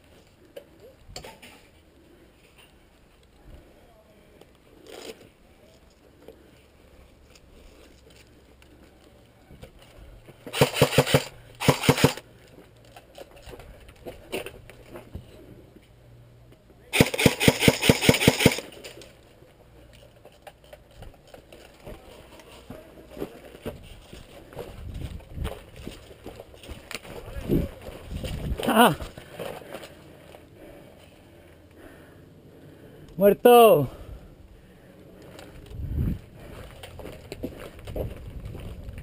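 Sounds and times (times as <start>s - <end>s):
airsoft gun firing bursts: 10.5s - 12.2s, 16.9s - 18.7s.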